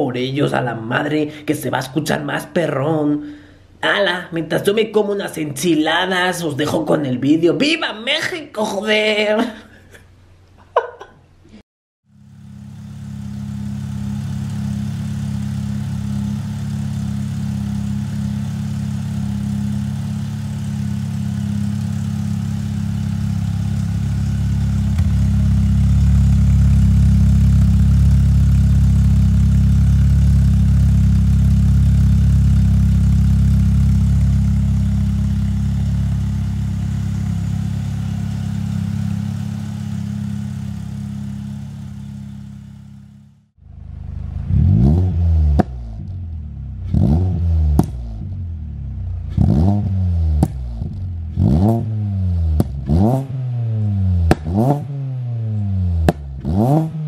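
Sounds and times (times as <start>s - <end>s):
car engine idling: 12.1s - 51.5s.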